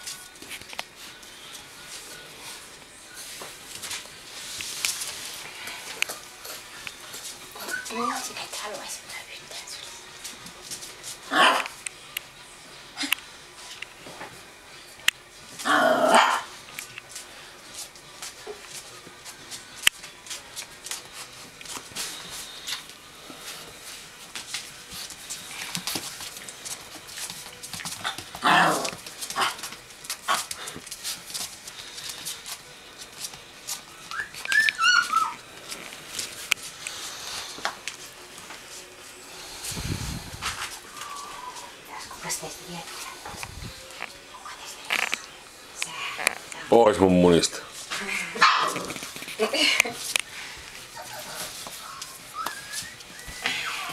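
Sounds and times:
puppies whimpering: 7.5 - 8.3, 34.0 - 35.5, 40.8 - 42.3, 51.0 - 53.9
puppies yelping: 34.1 - 35.5, 51.0 - 53.9.

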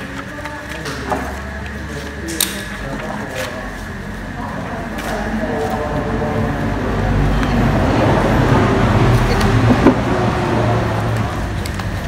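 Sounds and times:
vehicle engine rumbling: 5.3 - 12.0.

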